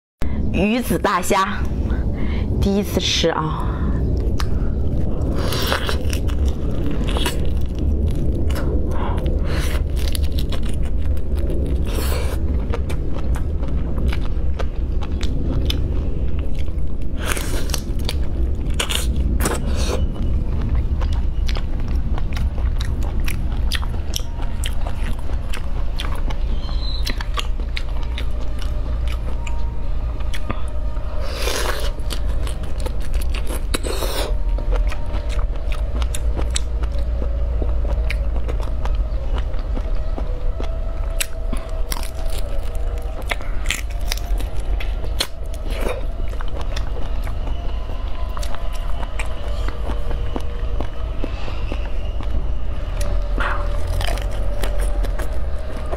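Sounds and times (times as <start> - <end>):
steady low hum: 0.2 - 55.9
chewing: 4.1 - 55.9
prawn shells cracking and peeling: 5.3 - 15.2, 40.5 - 46.8, 53.1 - 55.9.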